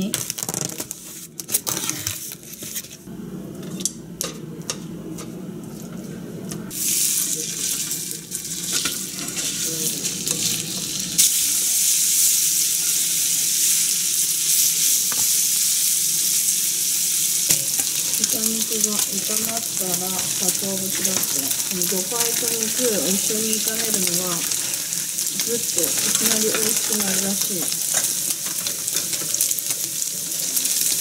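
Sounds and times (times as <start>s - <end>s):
plastic wrap rustling: 0.0s - 3.0s, 17.6s - 30.6s
meat sizzling in hot oil: 6.7s - 31.0s.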